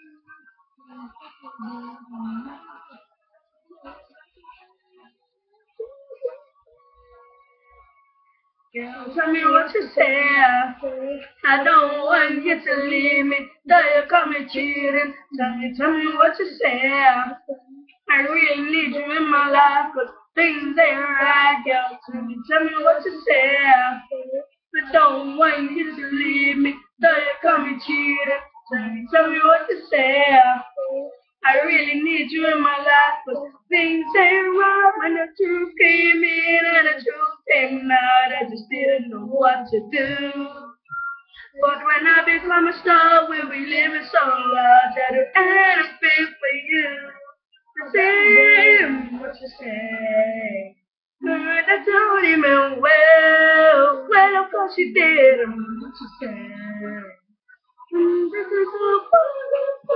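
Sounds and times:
boy singing unaccompanied: 8.8 - 50.6, 51.2 - 57.1, 57.9 - 59.9.

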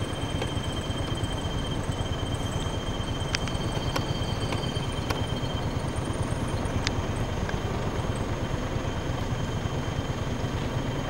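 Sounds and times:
high-pitched insect drone: 0.0 - 11.0
vehicle engine idling: 0.0 - 11.0
faint clicks: 6.8 - 7.6.

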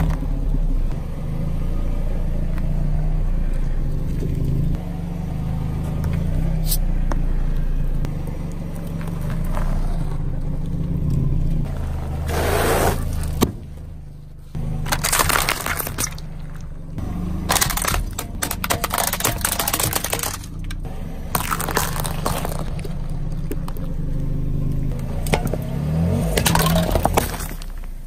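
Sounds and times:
car engine idling: 0.0 - 28.0
hard plastic cracking and crunching: 14.8 - 16.6, 17.4 - 23.9, 26.2 - 28.0.

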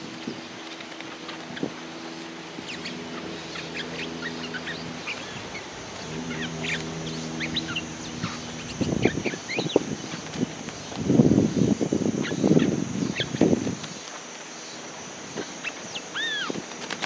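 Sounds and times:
bulbuls chirping: 0.0 - 17.0
steady low hum: 0.0 - 17.0
loud rough low bursts: 3.1 - 11.5.

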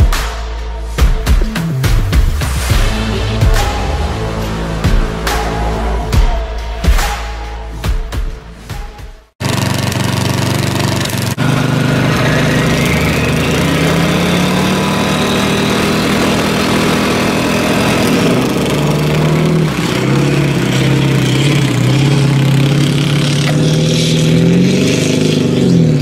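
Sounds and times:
pickup truck diesel engine revving: 1.8 - 7.2, 9.4 - 26.0
lawn tractor engine revving: 9.4 - 26.0.

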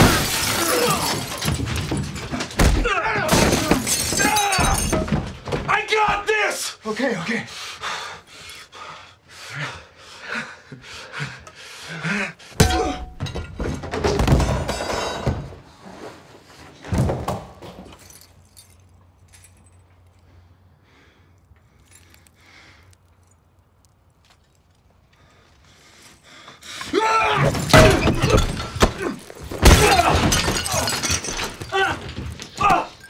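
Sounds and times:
ceramic and tile breaking: 0.0 - 5.4, 27.5 - 33.0.

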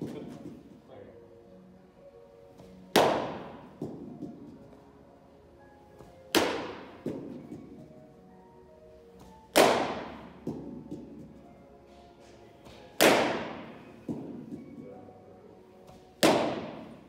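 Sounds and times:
faint background music: 0.0 - 17.0
baseball smacking into mitt: 2.9 - 4.6, 6.0 - 7.4, 9.2 - 11.3, 12.6 - 14.6, 15.8 - 17.0.

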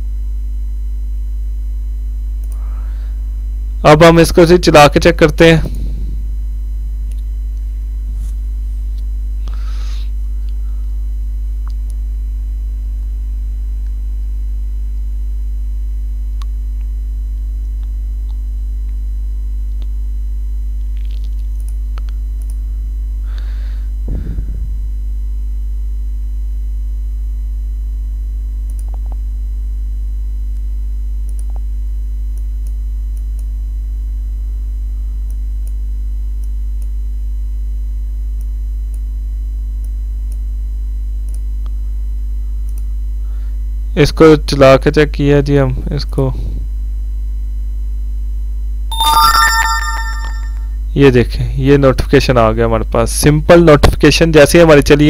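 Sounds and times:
electrical mains hum: 0.0 - 55.0.

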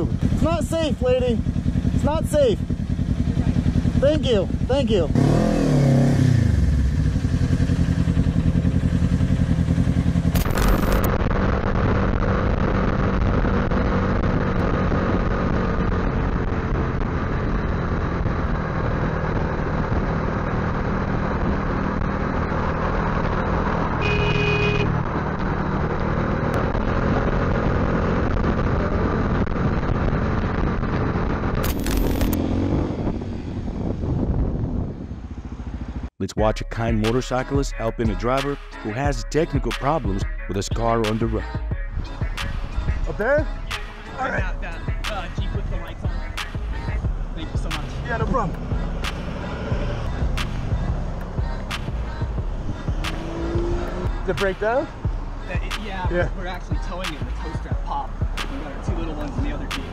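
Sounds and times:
motorcycle engines: 0.0 - 59.9
wind rush: 32.2 - 35.7.

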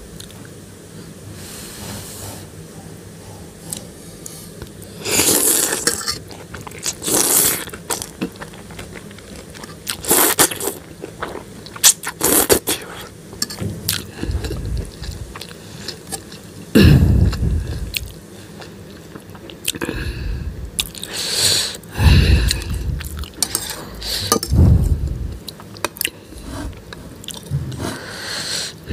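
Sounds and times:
person slurping noodles: 5.0 - 6.1, 7.0 - 7.7, 10.0 - 10.8, 21.2 - 25.4
person chewing: 5.1 - 13.0, 13.9 - 21.1, 22.0 - 27.5
fork scraping a bowl: 23.3 - 24.5.

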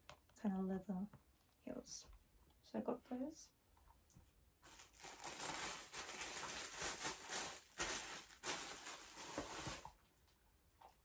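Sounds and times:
rustling and handling noise: 3.7 - 10.9.

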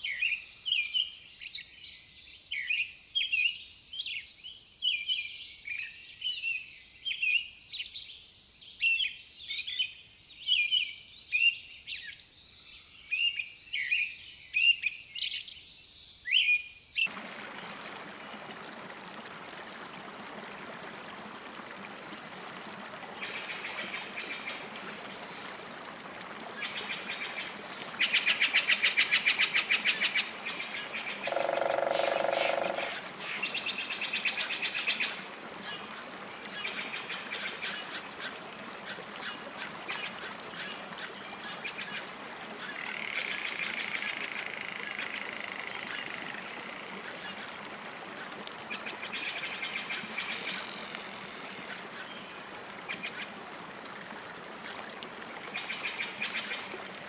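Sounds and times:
honk-like animal call: 31.2 - 33.0
high-pitched rattling trills: 31.3 - 33.0.

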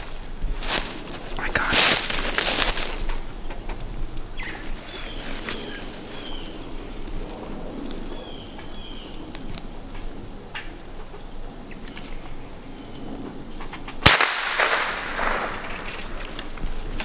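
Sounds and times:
noisy rustle: 0.0 - 17.0
rifle shot: 14.0 - 16.2.

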